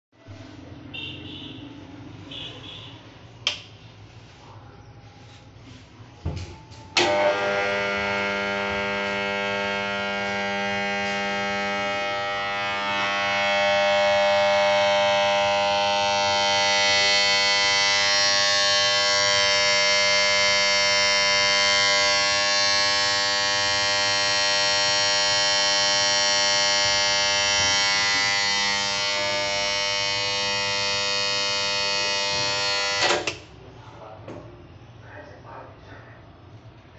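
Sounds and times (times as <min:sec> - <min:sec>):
loud steady electrical buzz: 0:06.9 - 0:33.7.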